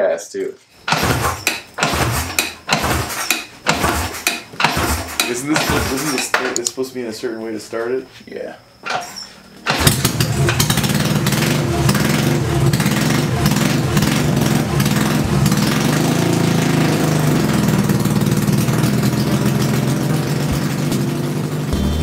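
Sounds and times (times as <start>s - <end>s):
motorcycle engine running: 9.7s - 22.0s.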